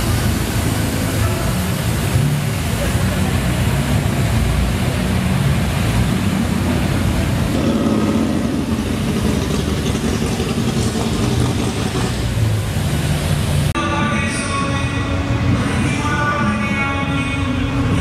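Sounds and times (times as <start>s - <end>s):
pickup truck engine rumbling: 0.0s - 18.0s.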